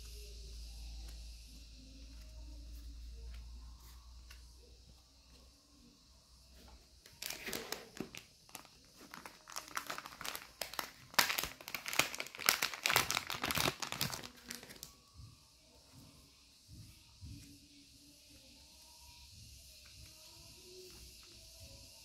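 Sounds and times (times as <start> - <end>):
plastic bag crinkling: 7.1 - 14.9.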